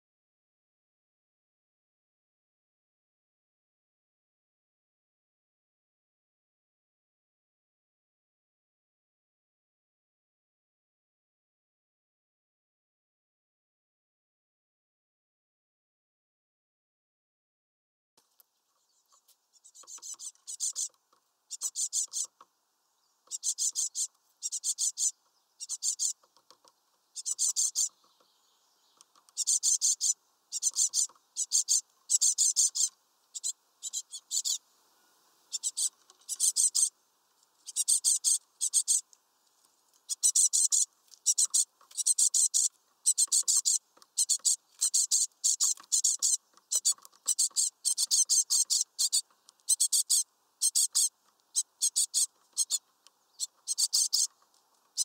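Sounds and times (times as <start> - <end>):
fledglings begging calls: 19.0 - 22.4, 23.2 - 26.3, 27.1 - 34.6, 35.5 - 37.0, 37.6 - 39.1, 40.0 - 55.0.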